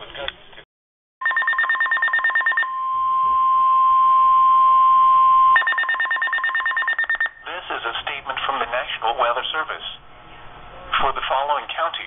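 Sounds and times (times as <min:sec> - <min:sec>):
rapid pulsed beeping: 0:01.2 - 0:02.8, 0:05.6 - 0:07.4
steady warning alarm tone: 0:01.2 - 0:07.5.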